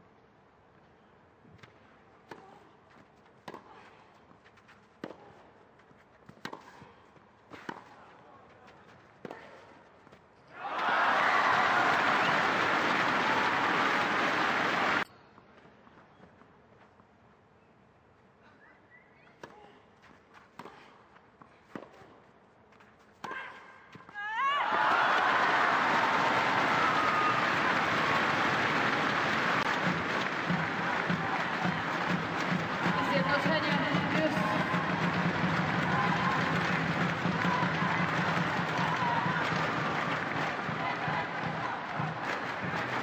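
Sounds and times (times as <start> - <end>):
tennis ball hit with rackets: 6.3 - 6.8
racquet striking tennis ball: 29.6 - 38.8.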